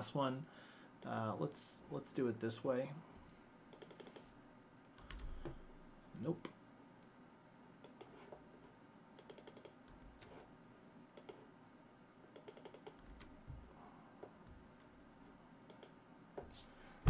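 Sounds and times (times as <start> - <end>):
typing on computer keyboard: 3.7 - 4.3, 9.2 - 10.3, 12.4 - 13.3.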